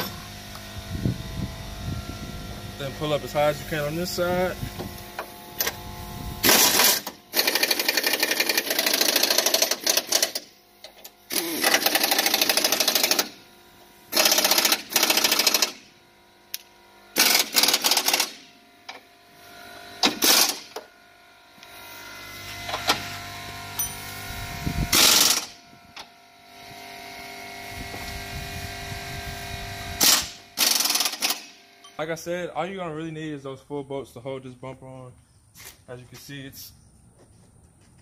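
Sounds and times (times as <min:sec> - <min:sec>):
pneumatic impact wrench hammering: 0:00.0 - 0:00.3, 0:04.6 - 0:05.8, 0:06.4 - 0:13.5, 0:14.1 - 0:19.1, 0:20.0 - 0:20.9, 0:21.8 - 0:26.2, 0:29.9 - 0:32.0.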